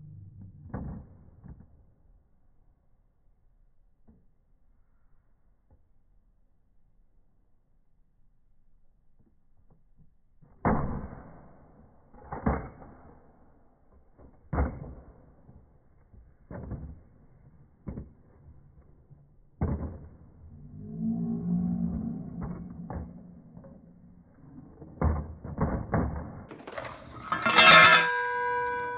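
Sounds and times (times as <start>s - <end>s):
low hum: 0.0s - 4.6s, 18.5s - 28.9s.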